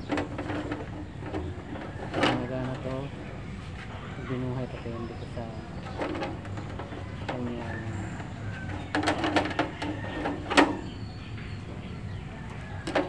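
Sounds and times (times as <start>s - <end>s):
metallic clicks and knocks: 0.0s - 3.4s, 5.7s - 13.0s.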